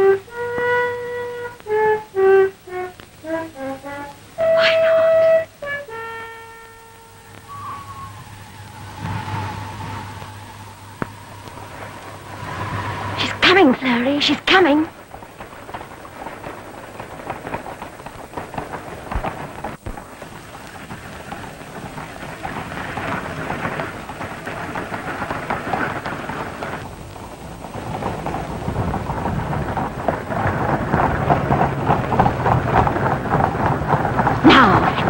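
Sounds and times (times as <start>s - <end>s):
rain: 0.0s - 35.0s
wind: 0.0s - 35.0s
low rumble: 6.9s - 35.0s.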